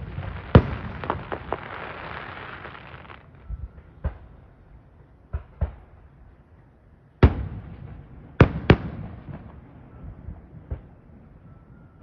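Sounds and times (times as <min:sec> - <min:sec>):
fireworks bangs: 0:00.0 - 0:03.4.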